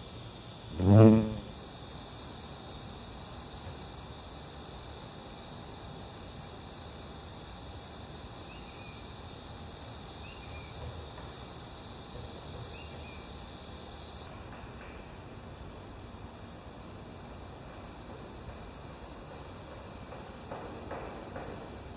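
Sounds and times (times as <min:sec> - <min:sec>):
high-pitched insect chorus: 0:00.0 - 0:14.3, 0:15.9 - 0:21.9.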